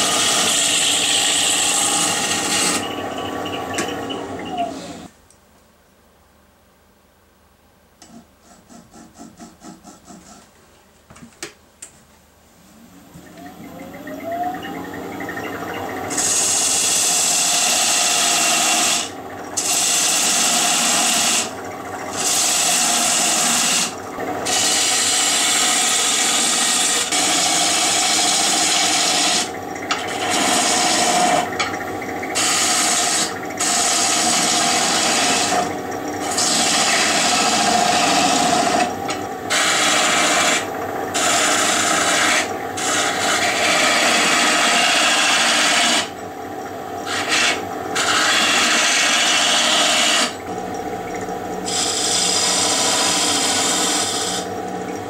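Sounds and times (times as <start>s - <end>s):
lathe tool scraping wood: 0.0s - 5.1s, 14.7s - 46.2s, 47.0s - 50.5s, 51.1s - 54.6s.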